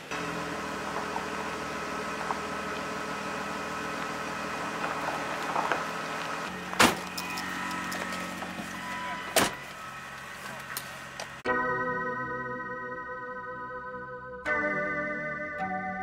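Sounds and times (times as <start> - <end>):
machine hum: 0.0 - 11.5.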